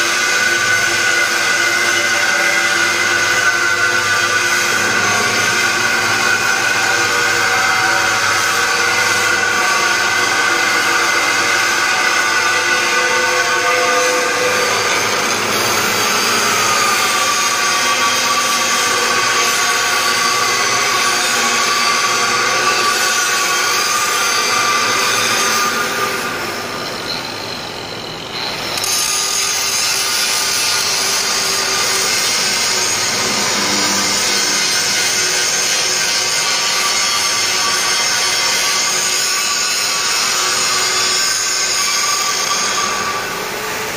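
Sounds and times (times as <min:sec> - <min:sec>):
angle grinder cutting metal: 0:00.0 - 0:27.4, 0:28.2 - 0:43.9.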